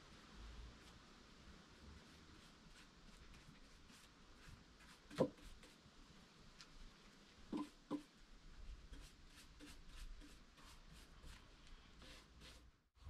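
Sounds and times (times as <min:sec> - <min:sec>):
paintbrush scratching on wood: 0:02.0 - 0:05.8, 0:07.5 - 0:08.1, 0:08.9 - 0:12.7.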